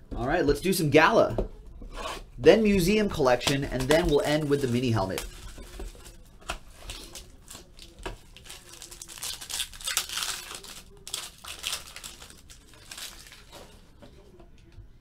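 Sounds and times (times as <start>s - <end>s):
foil wrapper tearing and crinkling: 3.5s - 13.8s.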